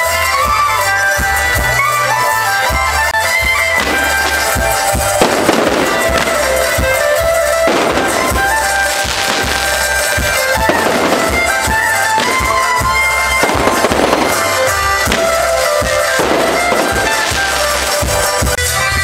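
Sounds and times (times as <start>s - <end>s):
reedy music with held notes: 0.0s - 19.0s
fireworks hissing: 3.3s - 18.6s
firework cracks and pops: 3.8s - 18.6s.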